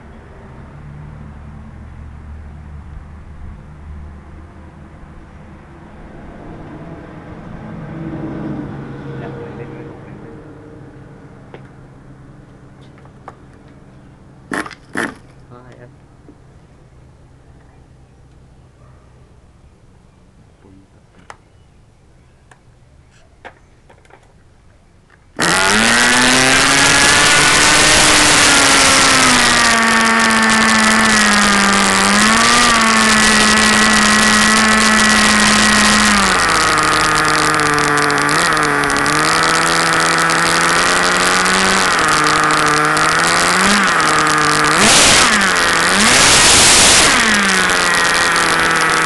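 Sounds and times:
small gasoline engine revving: 0:14.5 - 0:15.4, 0:25.4 - 0:49.0.

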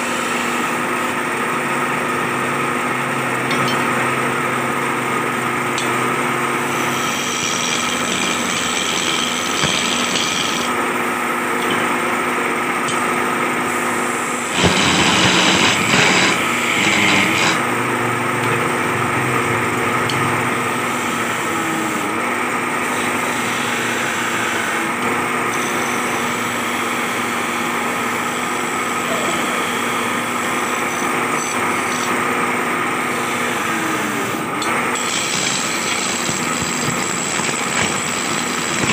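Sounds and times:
wood lathe humming: 0:00.0 - 0:03.4, 0:04.3 - 0:38.9
rough grating burst: 0:06.7 - 0:10.7, 0:14.4 - 0:17.7, 0:35.0 - 0:38.9.

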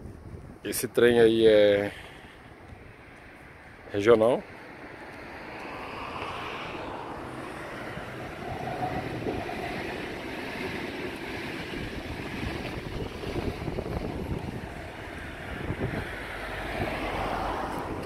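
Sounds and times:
wind on microphone: 0:00.0 - 0:00.7, 0:05.4 - 0:18.0
passenger train rumbling past: 0:02.9 - 0:18.0.

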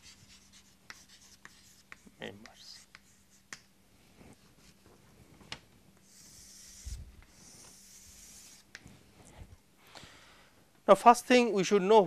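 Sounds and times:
chalk on blackboard: 0:00.0 - 0:03.7, 0:06.0 - 0:08.9.

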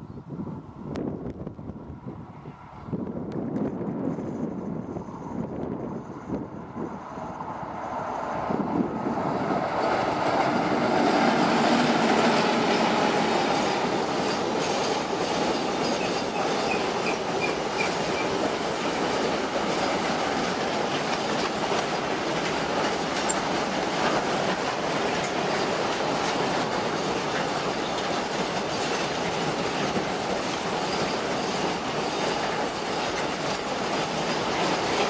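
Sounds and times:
electric locomotives passing: 0:00.0 - 0:35.0
freight train rolling by: 0:00.0 - 0:35.0
train wheels clickety-clack: 0:09.1 - 0:35.0.

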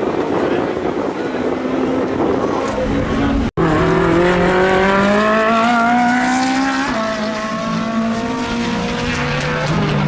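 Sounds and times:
race car engine accelerating: 0:02.4 - 0:10.0.

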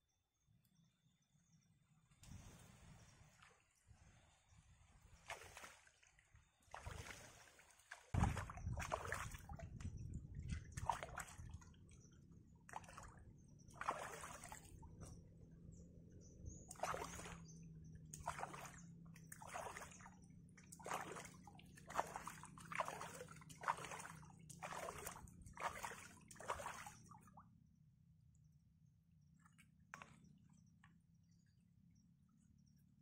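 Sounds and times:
water sloshing and splashing: 0:02.2 - 0:15.2, 0:16.7 - 0:27.4, 0:29.4 - 0:30.3.

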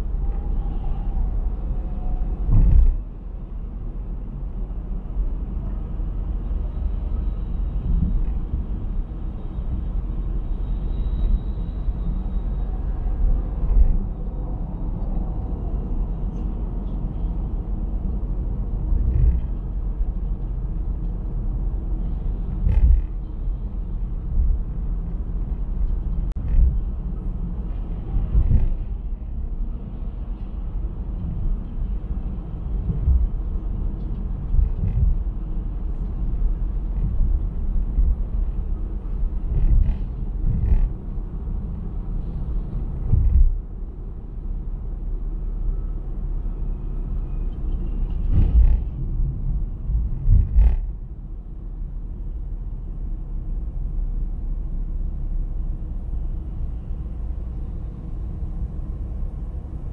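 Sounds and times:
car road rumble: 0:00.0 - 0:59.9.

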